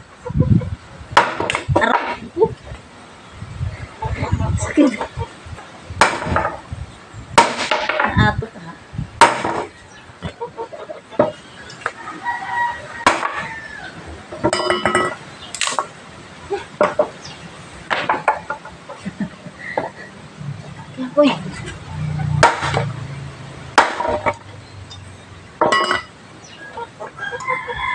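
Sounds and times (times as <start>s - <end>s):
axe chopping wood: 1.2s - 2.2s, 6.0s - 6.6s, 7.4s - 8.2s, 9.2s - 9.7s, 22.4s - 22.8s, 23.8s - 24.4s
rooster crowing: 12.0s - 14.4s, 26.6s - 27.9s.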